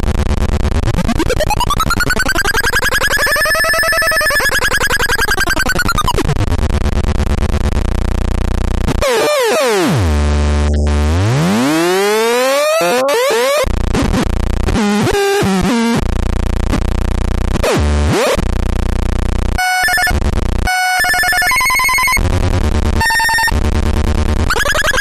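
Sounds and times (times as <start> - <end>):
buzzy synthesizer tone: 1.0 - 6.4, 8.9 - 14.2, 24.4 - 25.0.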